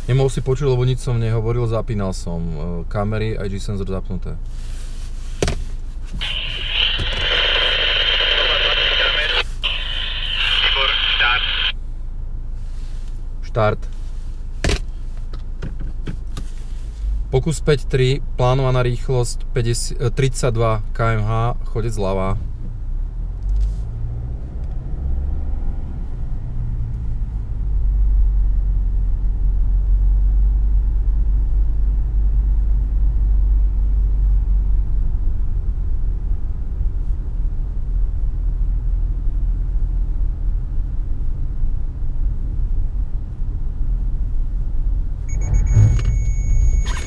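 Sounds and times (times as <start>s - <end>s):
car engine and tyre rumble: 0.0s - 47.0s
low thump: 45.3s - 46.9s
high electronic warning tone: 45.3s - 47.0s.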